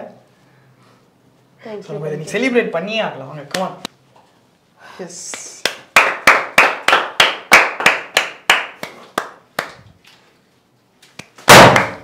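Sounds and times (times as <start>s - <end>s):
person clapping: 5.3s - 9.8s, 11.2s - 12.0s
confetti popper bang: 11.5s - 12.0s.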